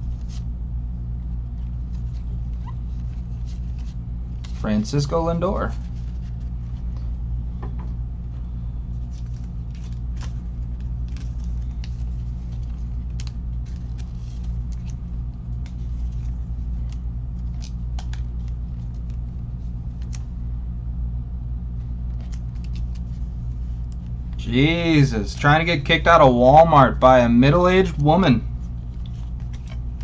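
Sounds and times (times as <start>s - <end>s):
steady low hum: 0.0s - 30.0s
trading cards clicking and rustling: 1.5s - 7.1s, 8.9s - 20.3s, 21.9s - 25.7s, 27.8s - 30.0s.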